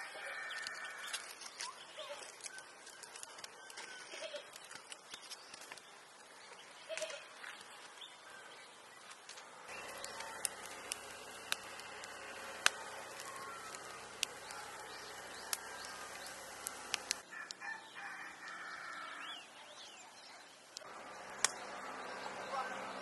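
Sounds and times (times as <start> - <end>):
rooster crowing: 0.0 - 1.2, 17.2 - 19.3
wood fire crackling and popping: 0.6 - 8.0, 9.0 - 17.2.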